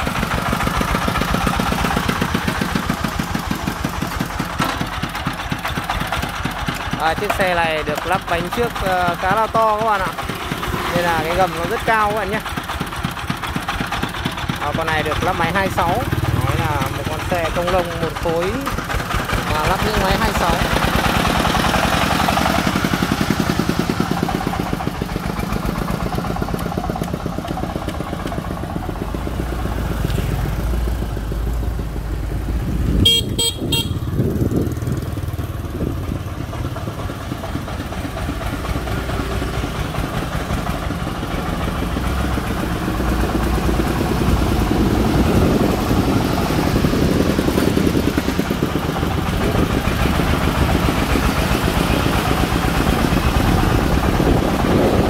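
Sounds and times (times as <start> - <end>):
diesel engine chugging: 0.0 - 55.0
horn beeping: 33.0 - 34.3.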